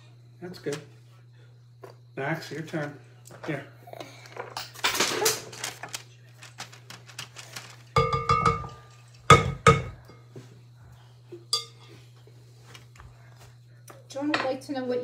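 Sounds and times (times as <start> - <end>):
spoons clinking against glass bowl: 8.0 - 10.3, 11.5 - 11.9.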